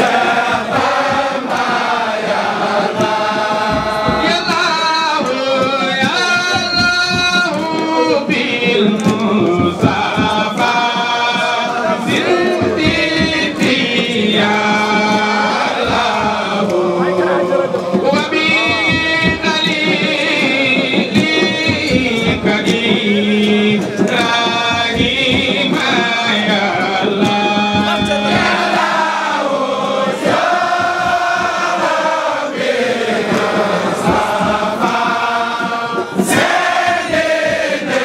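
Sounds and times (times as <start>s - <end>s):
crowd singing a chant: 0.0s - 38.0s.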